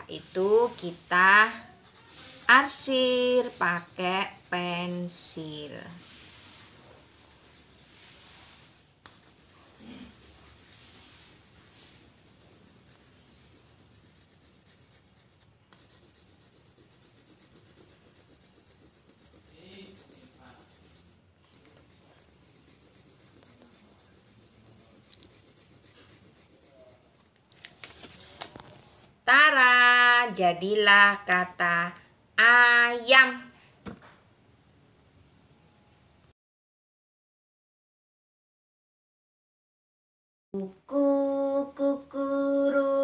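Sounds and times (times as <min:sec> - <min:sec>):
pencil shading on paper: 0:00.2 - 0:27.3.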